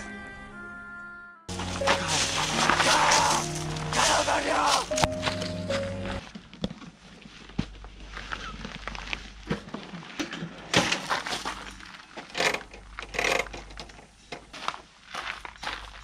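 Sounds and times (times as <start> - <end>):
bag rustling: 1.5 - 6.3
gear clicks and knocks: 10.8 - 14.6.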